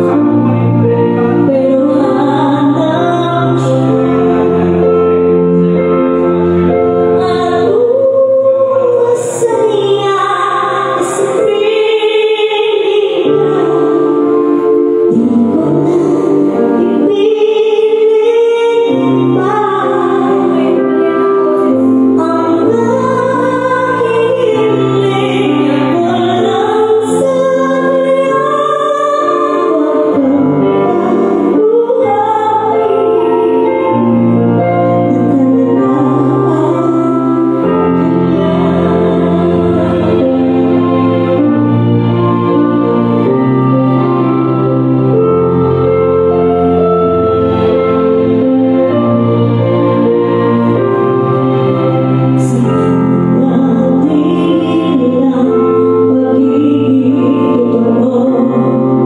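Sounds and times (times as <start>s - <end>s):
woman singing into a microphone: 0.0s - 45.7s, 46.3s - 59.0s
instrumental accompaniment: 0.0s - 59.0s.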